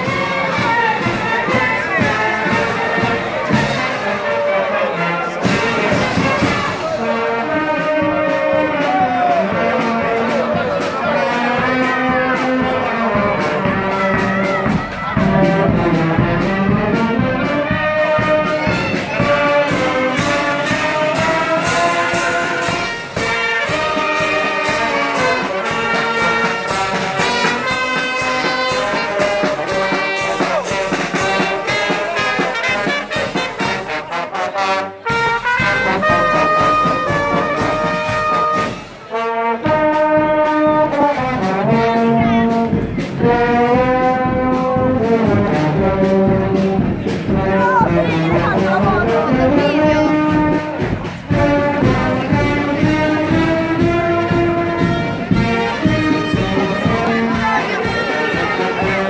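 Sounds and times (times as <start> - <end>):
brass and clarinets playing march: 0.0 - 59.0
bass drum and snare beat: 7.6 - 34.1, 35.1 - 39.0, 39.6 - 59.0.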